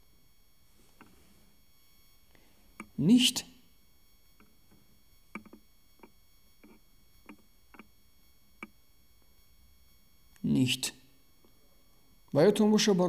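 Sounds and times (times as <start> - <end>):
touchscreen typing taps: 5.4 - 7.9.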